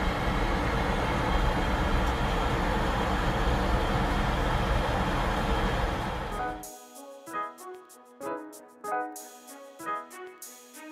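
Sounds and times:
low engine drone: 0.0 - 6.6.

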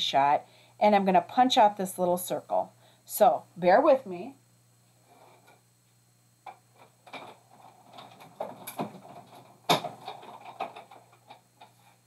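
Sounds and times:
die-cutting machine clicks and knocks: 8.4 - 11.4.

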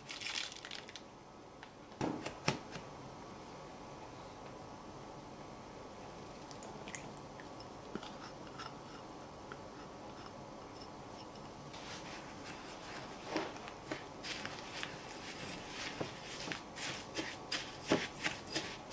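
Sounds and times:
spatula scraping crumbs in glass bowl: 15.3 - 18.9.

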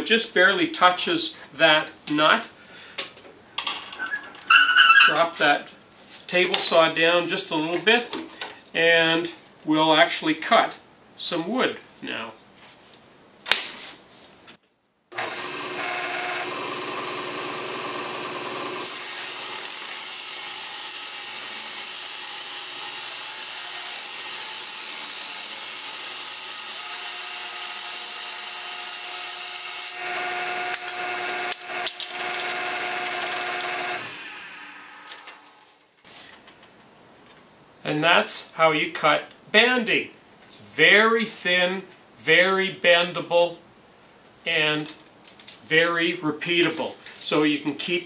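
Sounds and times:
saw ripping wood: 15.1 - 35.8
table saw running: 15.1 - 35.8.

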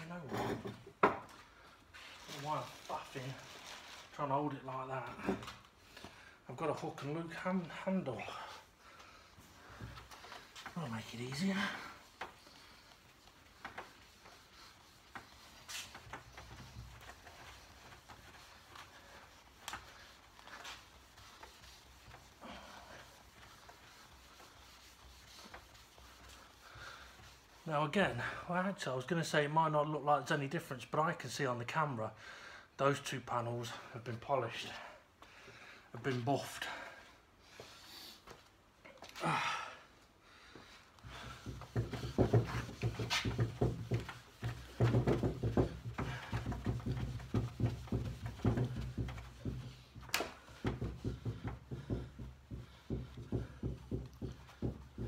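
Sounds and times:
buffing pad rubbing wood: 9.4 - 28.4, 41.1 - 55.0.

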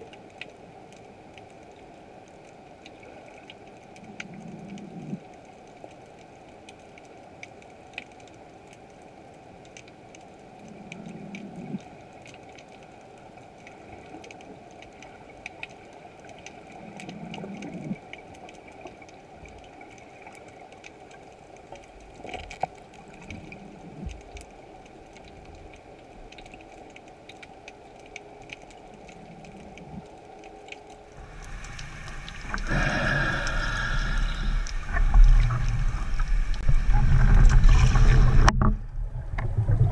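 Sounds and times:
small underwater clicks: 0.0 - 39.9
faint underwater hiss: 28.2 - 38.8
low underwater swells: 28.2 - 39.9
rushing water noise: 28.2 - 39.9.

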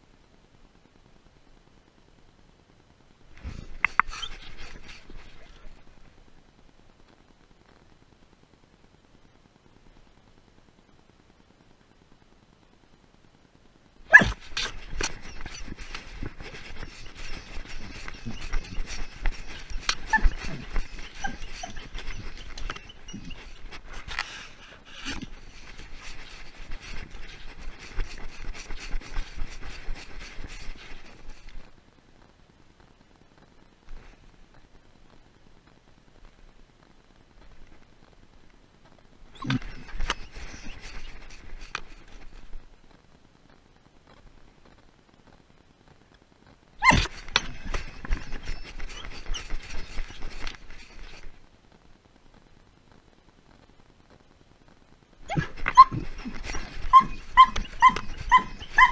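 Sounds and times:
faint hiss: 0.0 - 58.9
dog scuffling and rustling: 3.4 - 6.0, 14.1 - 31.7, 39.4 - 42.6, 46.8 - 51.4, 55.3 - 58.9
dog yelping: 3.8 - 5.8, 14.1 - 31.5, 39.3 - 42.2, 46.8 - 51.3, 55.2 - 58.9.

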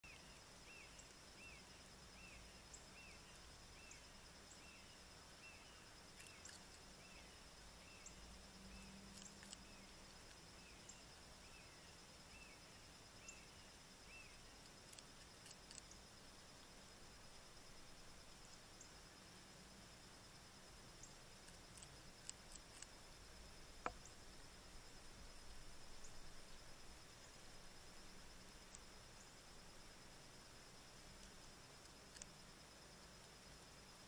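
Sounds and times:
faint high-pitched hum: 0.0 - 34.0
faint clicks: 9.1 - 10.4, 23.8 - 24.2.

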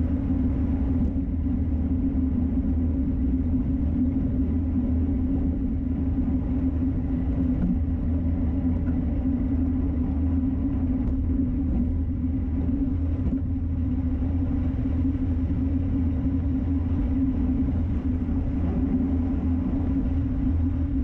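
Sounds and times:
road and tyre noise: 0.0 - 21.0
wind rumble on microphone: 0.0 - 21.0.

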